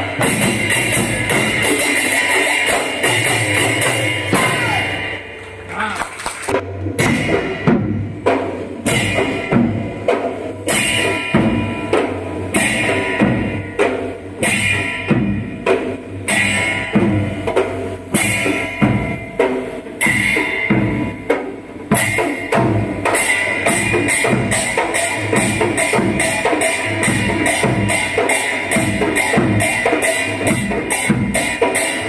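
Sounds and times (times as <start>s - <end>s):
barrel drum beaten with stick: 0.0s - 5.2s, 6.5s - 32.0s
hand drums playing fast rhythm: 0.0s - 5.2s, 6.4s - 32.0s
bright cymbal clash: 8.8s - 32.0s.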